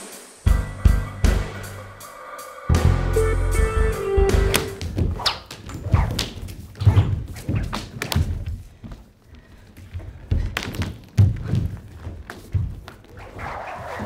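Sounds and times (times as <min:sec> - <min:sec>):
bare feet thudding on stage floor: 0:04.3 - 0:13.2.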